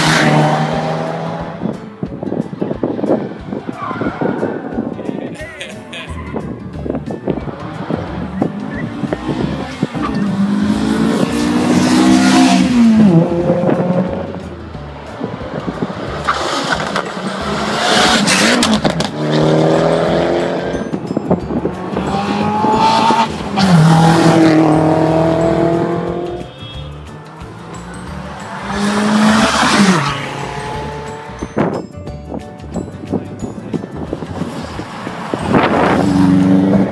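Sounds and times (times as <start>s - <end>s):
rally cars accelerating past: 0.0s - 1.7s, 7.5s - 14.4s, 15.1s - 21.0s, 21.7s - 26.5s, 27.5s - 31.7s, 34.2s - 36.9s.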